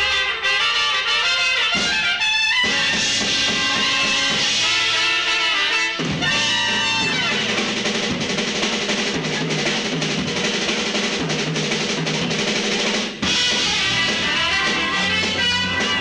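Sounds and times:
trumpets playing: 0.0s - 8.1s, 13.2s - 16.0s
rock band playing: 0.0s - 16.0s
drum roll fill: 1.6s - 16.0s.

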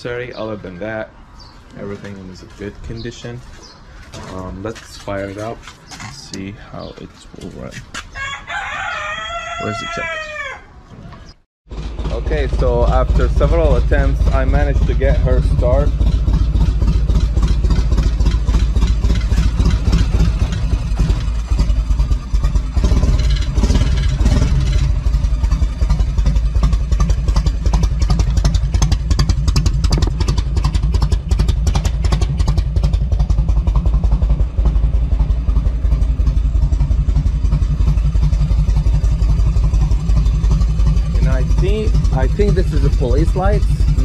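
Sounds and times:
motorcycle engine idling: 11.7s - 44.0s.

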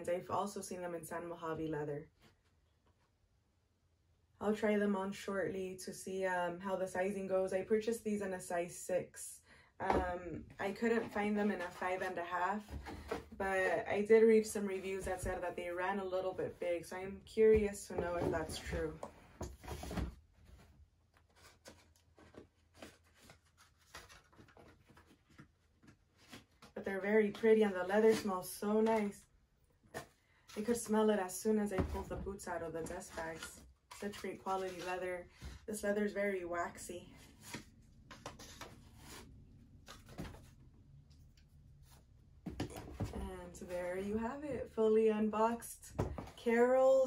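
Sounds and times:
paper rustling and crinkling: 19.4s - 26.8s, 32.9s - 35.6s.

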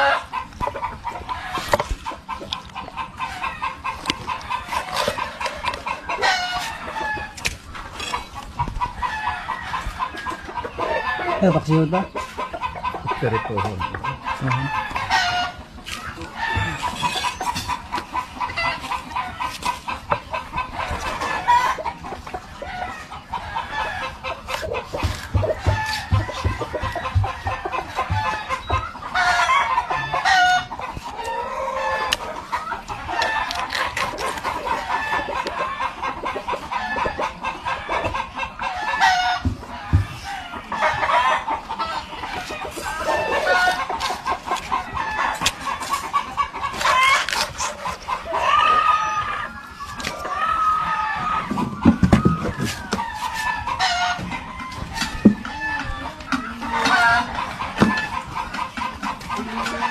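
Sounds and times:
rooster crowing: 0.0s - 0.3s, 16.2s - 17.2s, 22.6s - 32.2s, 48.3s - 58.2s
chickens clucking: 0.0s - 59.9s.

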